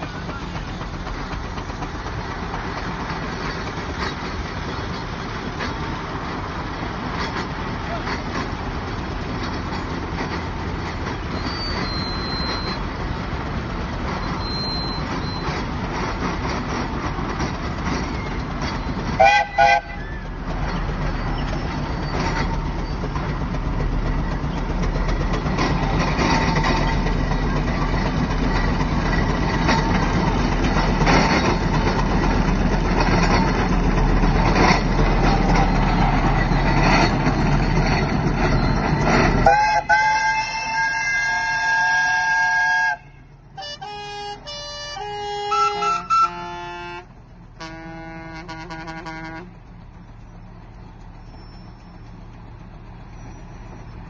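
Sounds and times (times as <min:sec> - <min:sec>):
steam engine exhaust chuffing: 0:00.0 - 0:54.0
steam whistle blast: 0:39.4 - 0:47.0.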